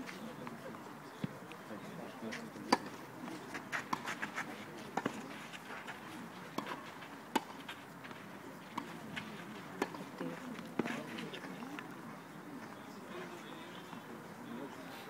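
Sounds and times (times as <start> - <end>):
tennis balls struck with rackets: 2.3 - 4.2, 4.9 - 5.2, 6.5 - 11.0.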